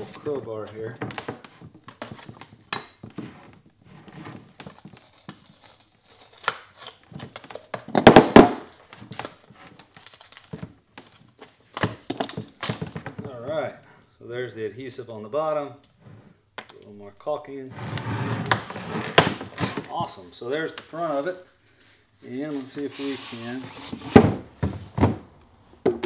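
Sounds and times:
adhesive tearing crackle: 4.7 - 7.1.

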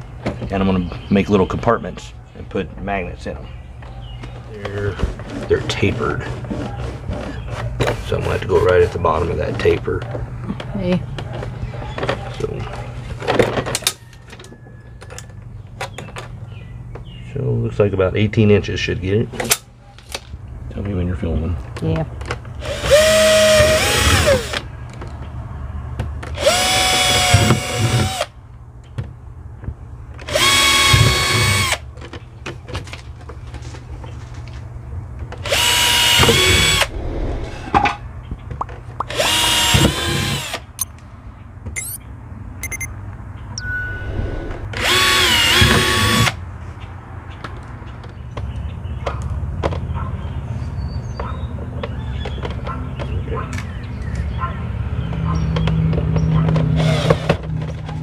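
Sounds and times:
cordless drill drilling plastic: 22.6 - 24.6, 26.4 - 28.3, 30.3 - 31.8, 35.5 - 36.8, 39.1 - 40.6, 44.8 - 46.4, 56.8 - 57.4.

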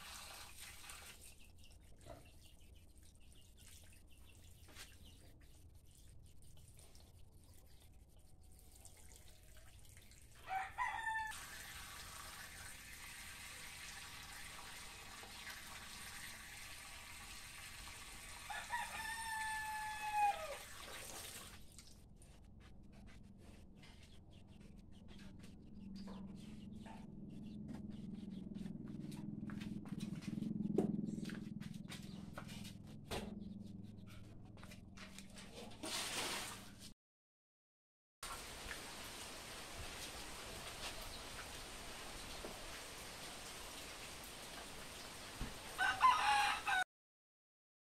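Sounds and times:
rooster crowing: 10.4 - 11.6, 18.5 - 20.6, 45.8 - 46.9
low rumble: 25.5 - 34.4.

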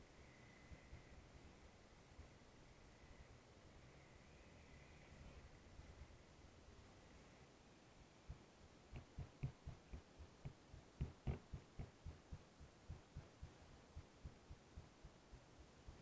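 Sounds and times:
muffled motorcycle thumps: 8.9 - 14.5.

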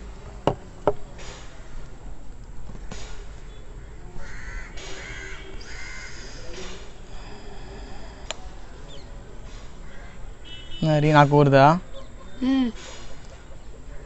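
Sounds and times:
crow cawing: 3.8 - 6.4, 9.8 - 10.3.

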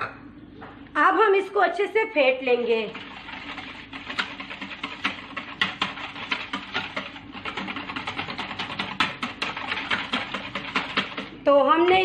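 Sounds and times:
whisking in plastic bowl: 2.4 - 12.0.

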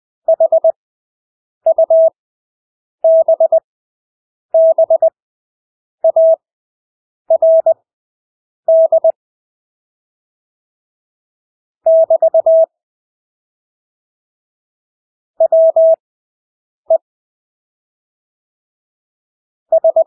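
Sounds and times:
morse code tone: 19.7 - 20.0.

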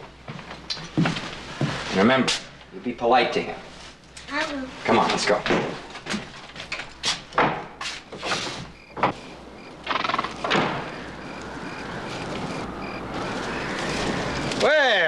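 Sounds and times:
footsteps on wooden boards: 0.1 - 1.9
crickets chirping: 8.2 - 15.0
rush of noise: 9.4 - 15.0.

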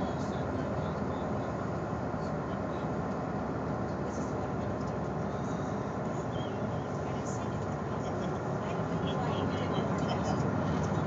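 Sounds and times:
ship low rumble: 0.0 - 11.0.

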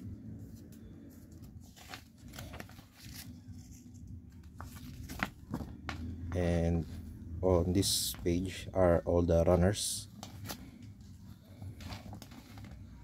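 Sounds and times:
paper pages rustling: 0.4 - 6.2, 10.0 - 13.0.

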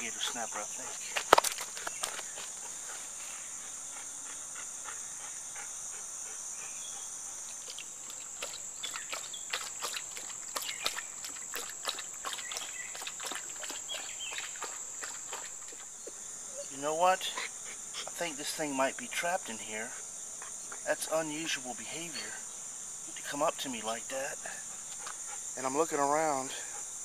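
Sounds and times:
chorus of insects: 0.0 - 27.0
clicks and rustles: 0.9 - 2.6.

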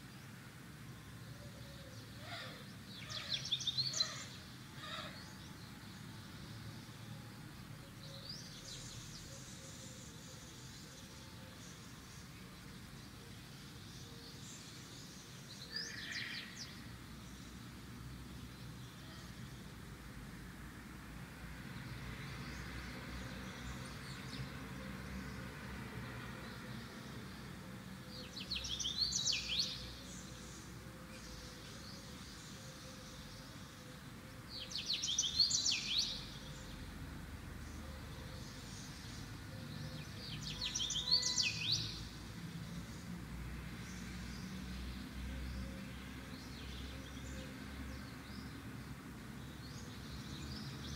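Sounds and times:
songbird chirping: 0.0 - 20.5, 21.2 - 50.9
bird chirping: 34.5 - 36.9, 37.6 - 42.3.

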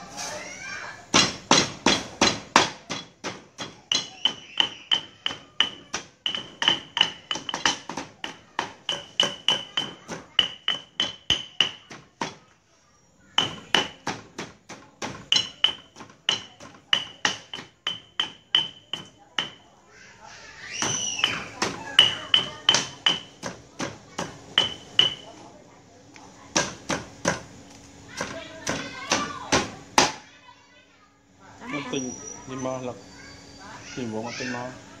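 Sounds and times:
stone pestle pounding in mortar: 1.1 - 12.4, 13.4 - 19.6, 20.8 - 25.3, 26.5 - 27.5, 28.2 - 30.2.

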